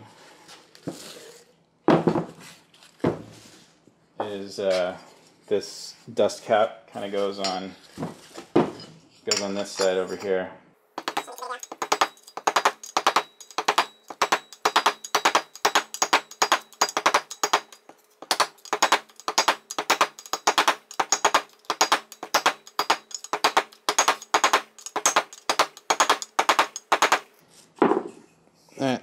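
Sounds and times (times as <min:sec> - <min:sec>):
hammer tapping on metal: 0:11.0 - 0:27.3.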